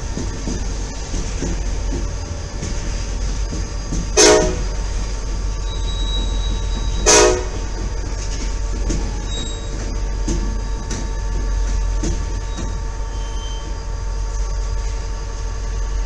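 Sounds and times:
train wheels rumbling on rails: 0.0s - 16.0s
locomotive horn blasts: 4.2s - 4.8s, 7.0s - 7.7s.

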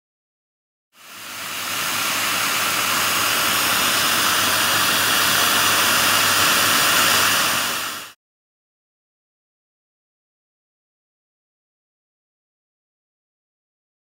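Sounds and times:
die grinder grinding cast iron: 1.1s - 8.2s.

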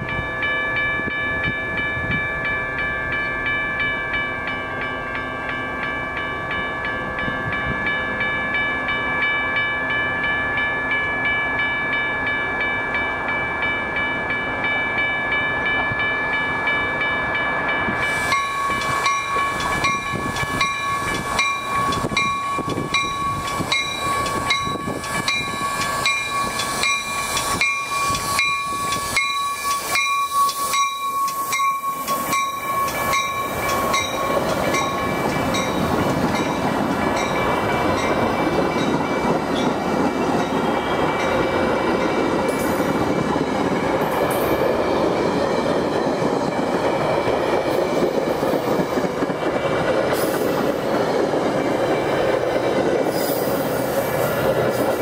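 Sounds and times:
crossing warning bell ringing: 0.0s - 55.0s
train rolling past: 0.0s - 55.0s
high hiss: 18.0s - 19.8s, 25.1s - 34.4s.

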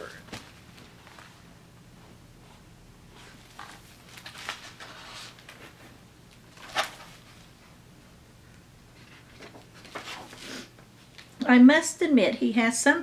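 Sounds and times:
paper rustling: 3.3s - 5.9s, 6.5s - 7.4s, 9.0s - 10.4s
page flapping: 3.5s - 5.6s, 6.5s - 7.2s.

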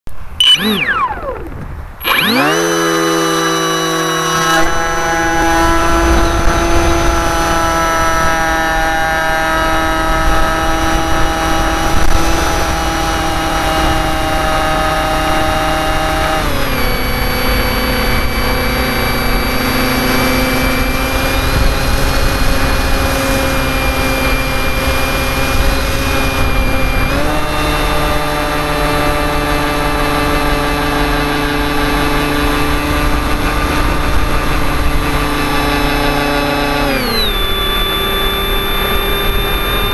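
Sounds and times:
electric motor whine: 0.4s - 39.9s.

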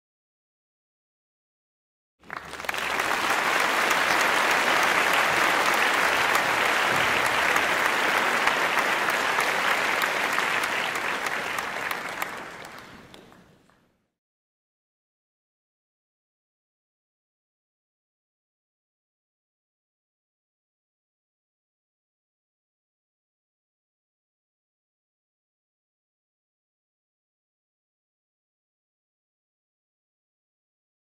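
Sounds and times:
audience applauding: 2.2s - 13.8s.

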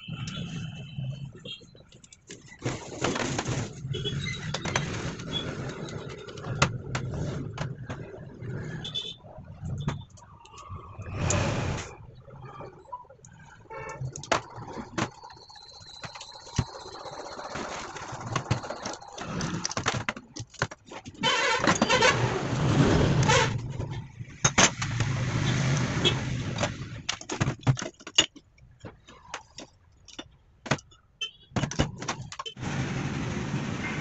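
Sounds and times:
metal parts clinking and knocking: 26.6s - 32.6s.

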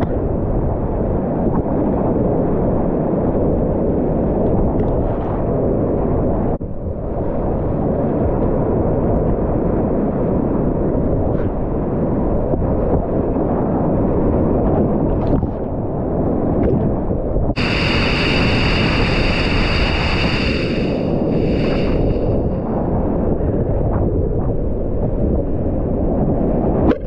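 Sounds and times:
whitewater rapid roaring: 17.6s - 22.4s
bright hiss with high whine: 17.6s - 22.6s.

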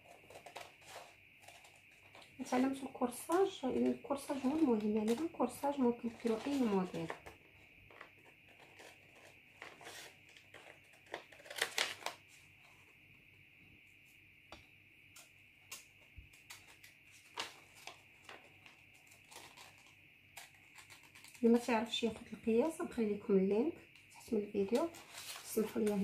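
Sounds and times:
paper rustling: 0.0s - 12.8s, 15.7s - 22.7s, 24.2s - 26.0s
scissors snipping paper: 3.3s - 5.4s, 8.6s - 12.1s, 19.0s - 21.6s.

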